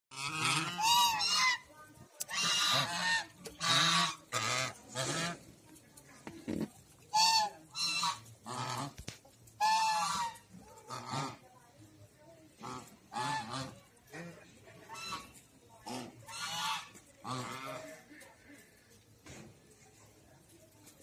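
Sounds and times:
geese honking: 0:00.1 - 0:05.6, 0:07.0 - 0:11.4, 0:12.6 - 0:18.7.

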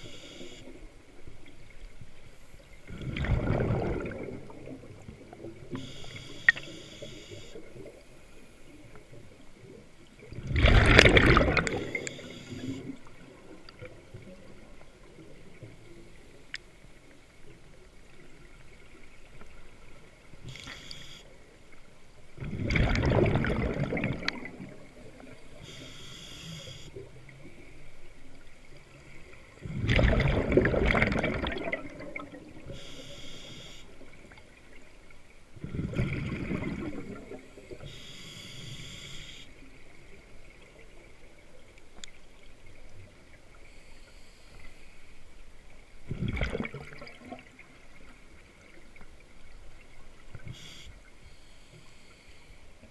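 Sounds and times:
regulator hiss on inhalation: 0:00.0 - 0:00.7, 0:05.8 - 0:07.6, 0:11.7 - 0:13.0, 0:20.5 - 0:21.3, 0:25.6 - 0:26.9, 0:32.7 - 0:34.0, 0:37.8 - 0:39.6, 0:50.4 - 0:52.6
gurgling exhaled bubbles: 0:02.8 - 0:05.8, 0:10.2 - 0:14.3, 0:22.4 - 0:25.4, 0:29.6 - 0:32.7, 0:35.6 - 0:37.8, 0:46.1 - 0:48.0.

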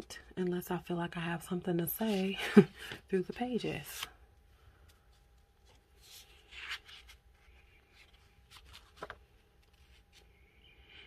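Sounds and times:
paper pages rustling: 0:04.9 - 0:10.4.

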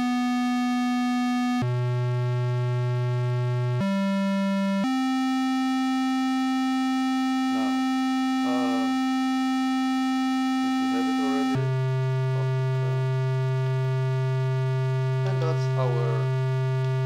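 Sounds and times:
buzzy synthesizer tone: 0:00.0 - 0:17.0
short warbling blips: 0:07.5 - 0:09.0.

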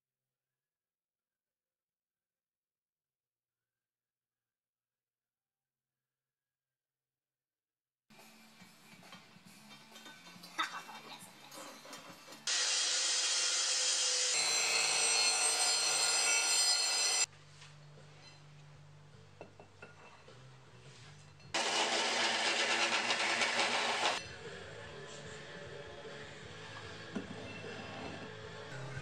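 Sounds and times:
power tool cutting steel: 0:12.5 - 0:17.3, 0:21.6 - 0:24.2.

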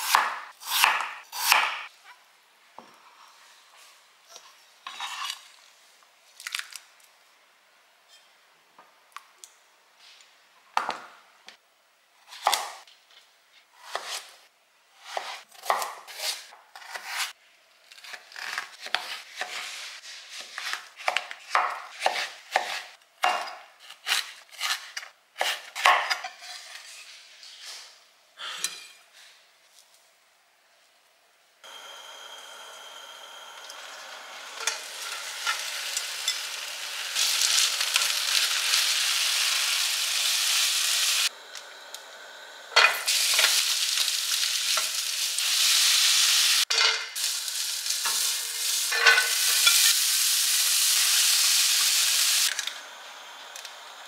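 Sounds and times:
utensils clinking on dishes: 0:46.7 - 0:47.2, 0:48.9 - 0:50.0.

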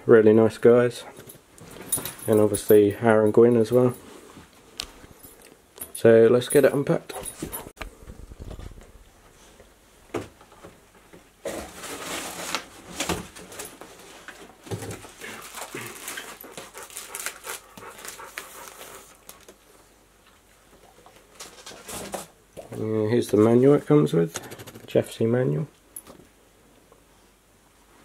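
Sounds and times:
cardboard rustling and scraping: 0:11.4 - 0:19.5
dog panting: 0:16.1 - 0:19.2.

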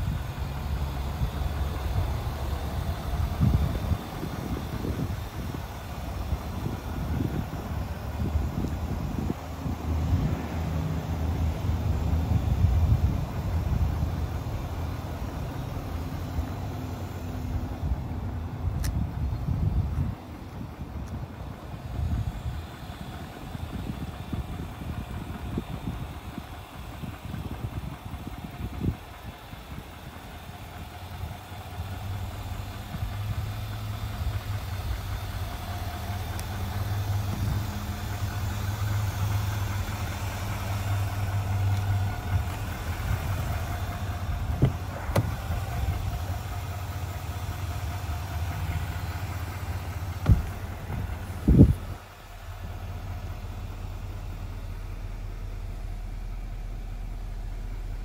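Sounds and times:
diesel engine idling: 0:00.0 - 0:58.0
car door shutting: 0:41.8 - 0:46.4, 0:50.2 - 0:51.8
loud thumps: 0:44.4 - 0:46.0, 0:50.2 - 0:51.1.

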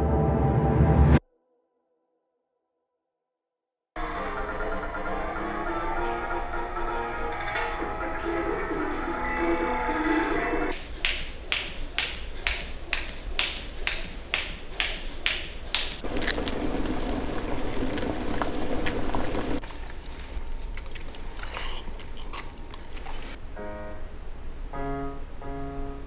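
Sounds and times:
chopsticks clicking on pot: 0:11.0 - 0:16.0
skipping rope slapping floor: 0:11.0 - 0:16.0
person chewing and slurping: 0:19.6 - 0:23.4.

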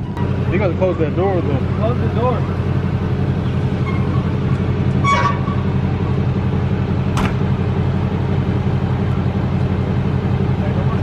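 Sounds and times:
vehicle engine idling: 0:00.0 - 0:11.0
sharp click: 0:07.2 - 0:07.4.

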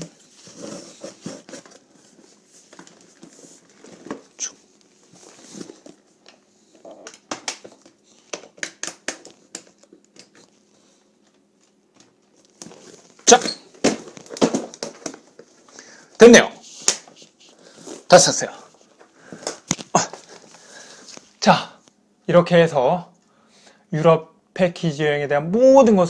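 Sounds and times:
contents rustling: 0:00.0 - 0:16.1, 0:16.7 - 0:21.4.

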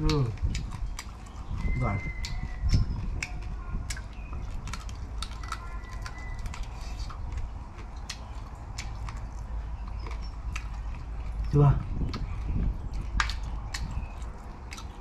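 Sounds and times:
crunching while chewing: 0:00.0 - 0:15.0
faint bird chirps: 0:01.2 - 0:03.1.

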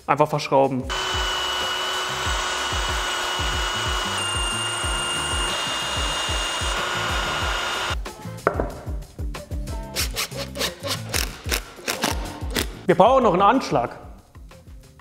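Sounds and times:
drill bit grinding through metal: 0:00.9 - 0:08.0
faint background music with beat: 0:06.6 - 0:15.0.

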